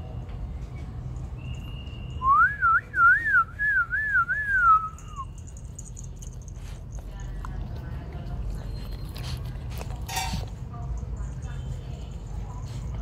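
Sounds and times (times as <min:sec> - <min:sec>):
person whistling a tune: 0:01.4 - 0:05.4.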